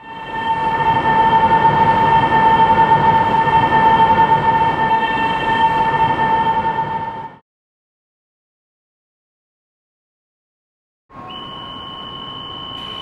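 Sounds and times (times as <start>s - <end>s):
train running: 0.0s - 7.4s, 11.1s - 13.0s.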